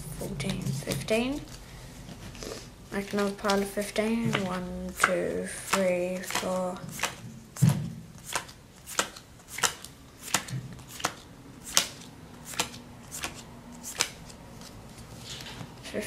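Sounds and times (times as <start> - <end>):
playing cards snapping onto pile: 8.3 - 14.2.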